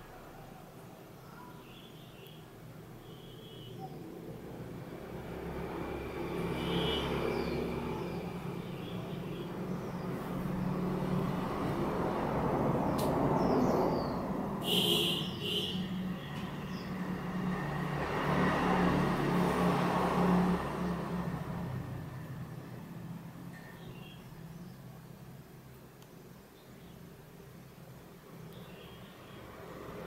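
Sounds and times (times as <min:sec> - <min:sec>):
birds chirping: 0:00.0 - 0:17.9, 0:20.6 - 0:30.0
road vehicle passing: 0:03.7 - 0:23.7, 0:28.2 - 0:30.0.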